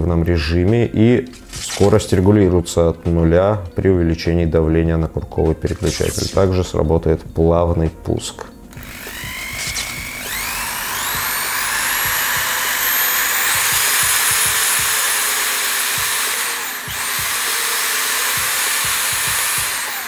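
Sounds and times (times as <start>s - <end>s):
drill motor whine: 8.7s - 20.0s.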